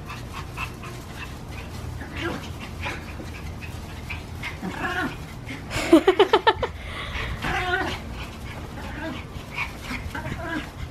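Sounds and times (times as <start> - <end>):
dogs play-fighting: 0.0 - 10.9
dog whining: 4.4 - 5.2, 7.4 - 8.1, 8.7 - 10.9.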